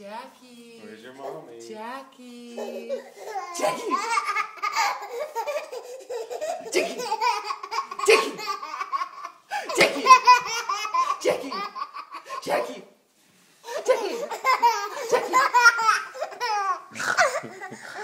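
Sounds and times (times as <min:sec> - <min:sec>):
baby laughing: 0:02.6 - 0:12.4, 0:13.6 - 0:18.0.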